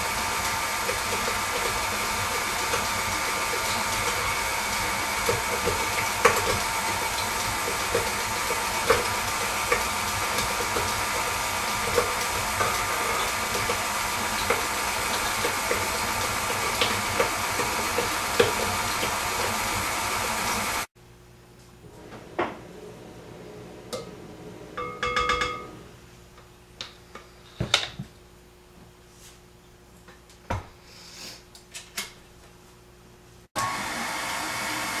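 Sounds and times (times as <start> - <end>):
stand mixer motor humming: 0.0 - 20.9, 33.6 - 35.0.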